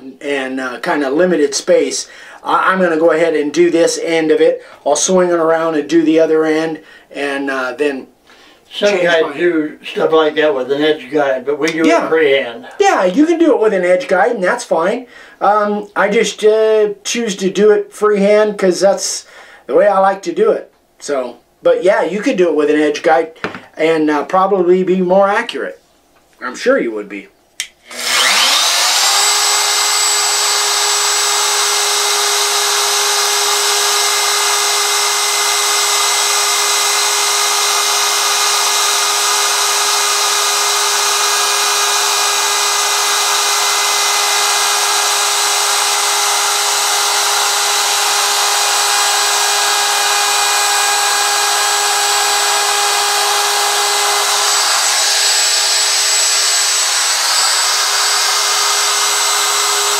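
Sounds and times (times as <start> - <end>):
wood router whining: 27.6 - 59.9.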